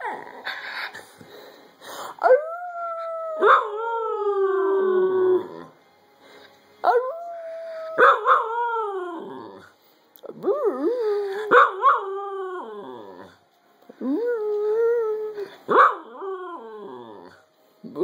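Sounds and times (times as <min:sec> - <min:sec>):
dog howling: 0:02.2 - 0:05.7, 0:06.9 - 0:09.7.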